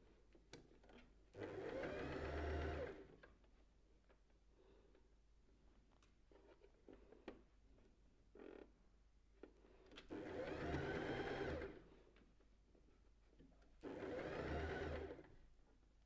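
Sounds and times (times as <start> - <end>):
sewing machine stitching: 1.4 - 3.1, 10.1 - 11.8, 13.8 - 15.3.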